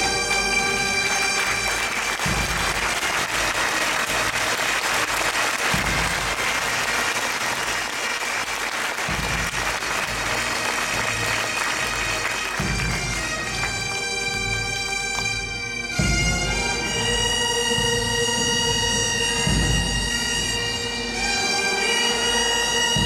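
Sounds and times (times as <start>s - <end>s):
marching bands playing a chord: 0.0s - 23.0s
audience applause: 0.1s - 14.0s
deep drum booms: 5.7s - 6.7s, 9.1s - 10.3s.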